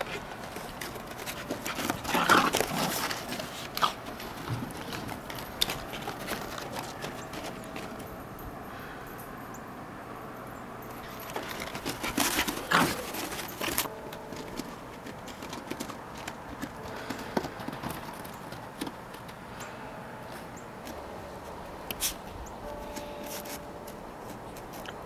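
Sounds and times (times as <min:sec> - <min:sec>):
dog crunching through snow: 0:00.0 - 0:08.0, 0:11.0 - 0:18.7, 0:22.0 - 0:24.9.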